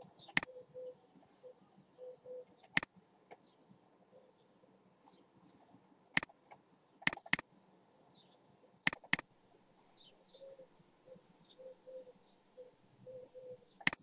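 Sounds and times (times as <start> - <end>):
faint bird chirps: 0.0 - 14.0
computer mouse clicking: 6.2 - 7.4, 8.9 - 9.3.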